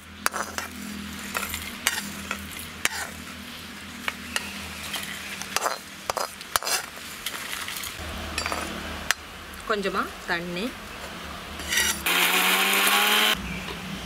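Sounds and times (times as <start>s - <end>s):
spatula scraping a pan: 0.2s - 3.3s, 4.0s - 8.0s, 11.6s - 12.1s.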